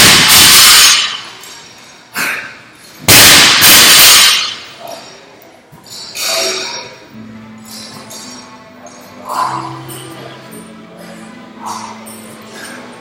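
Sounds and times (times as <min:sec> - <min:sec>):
barbell crashing on rubber floor: 0:00.0 - 0:01.3, 0:03.1 - 0:04.6.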